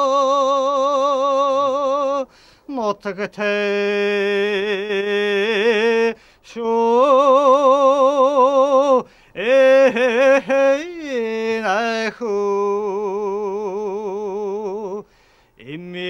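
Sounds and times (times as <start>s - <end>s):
person singing unaccompanied: 0.0s - 16.0s
singer breathing: 2.3s - 2.7s, 6.2s - 6.5s, 9.0s - 9.4s, 15.0s - 15.6s.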